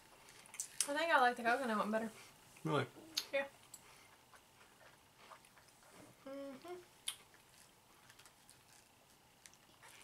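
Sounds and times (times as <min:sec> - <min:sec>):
brief hum-like voice: 0:06.2 - 0:06.8.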